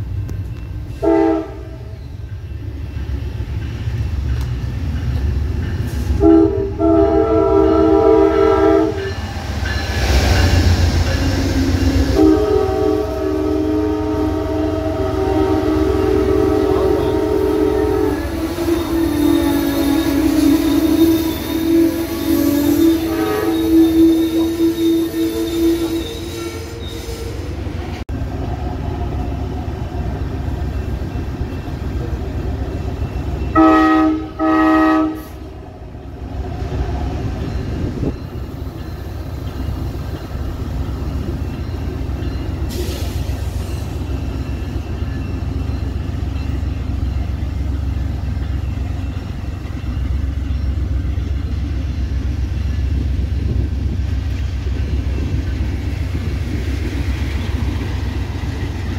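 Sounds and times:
train rumbling past: 0.0 - 58.9
train horn blasts: 0.9 - 2.0, 6.1 - 9.3, 11.2 - 27.5, 33.5 - 35.6.

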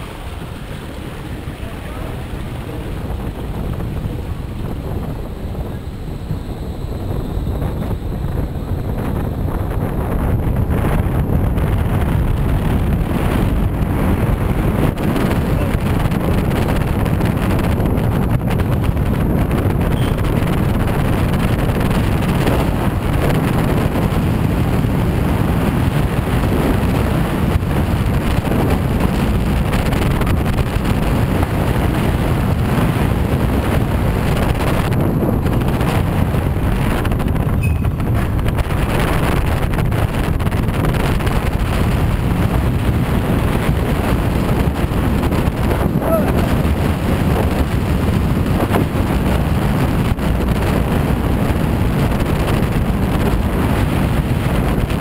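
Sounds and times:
bobsled wheels rolling on rails: 0.0 - 55.0
wind buffeting microphone: 0.0 - 55.0.

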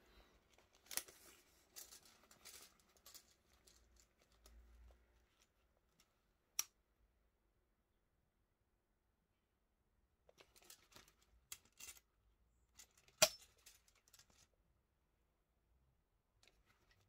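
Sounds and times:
soft rustles: 0.0 - 6.2.

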